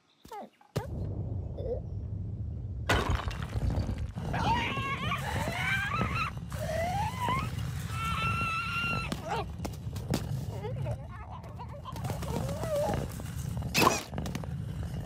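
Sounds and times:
low steady rumble: 0.9 - 7.4.

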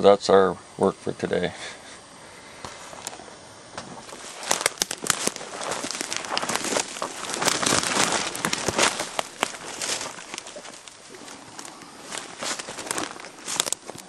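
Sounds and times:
rustling and crackling: 3.8 - 14.0.

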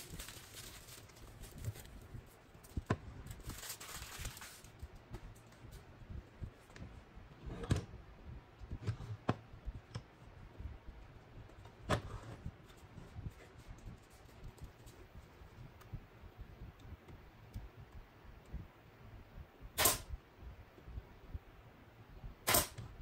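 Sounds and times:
tape rustling as pulled off: 0.0 - 5.8.

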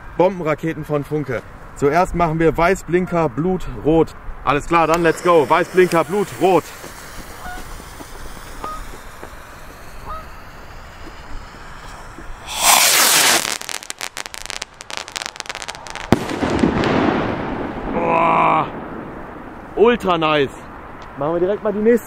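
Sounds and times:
firework crackles: 4.6 - 18.0
firework rocket launching: 4.6 - 18.0
firework bang: 4.8 - 19.7.

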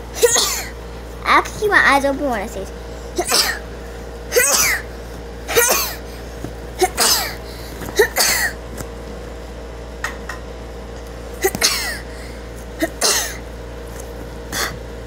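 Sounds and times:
boy fake sneezing: 0.2 - 0.7, 3.2 - 3.6, 4.3 - 4.9, 5.5 - 6.0.

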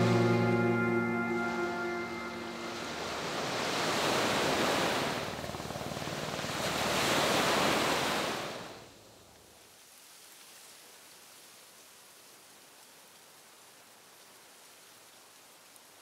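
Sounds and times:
surf washing up shore: 0.0 - 8.8
faint steady hiss: 7.8 - 16.0.

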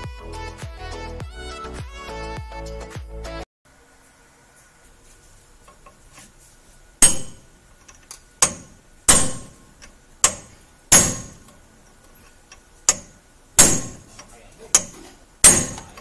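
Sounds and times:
hammer striking steel chisel: 7.0 - 7.5, 8.4 - 9.6, 10.2 - 11.5, 12.9 - 16.0.

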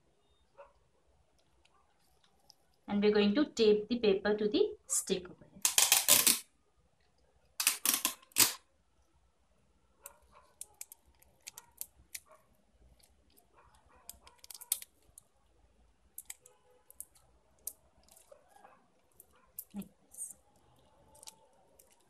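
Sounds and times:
small clicks: 16.2 - 18.3.

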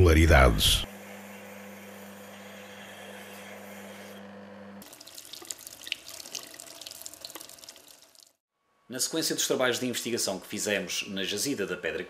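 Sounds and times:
water drips: 4.8 - 8.4.

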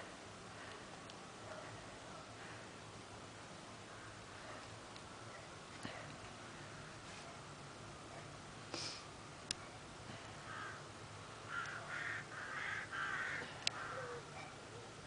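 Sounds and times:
crow-like bird cawing: 10.4 - 10.9, 11.5 - 14.3.

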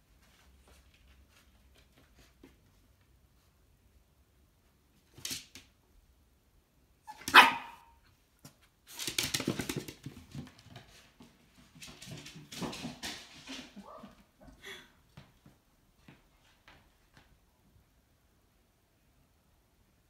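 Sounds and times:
puppy barking: 7.1 - 8.0
puppy yipping: 7.1 - 8.0.

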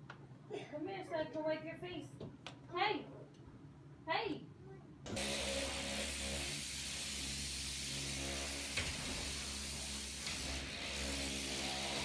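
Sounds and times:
motor and pump hum: 5.1 - 12.0
pressure washer water jet hiss: 5.2 - 12.0.

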